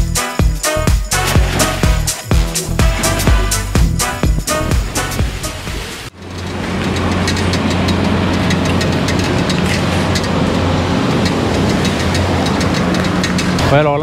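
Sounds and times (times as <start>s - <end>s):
bicycle rattling over rough road: 1.1s - 14.0s.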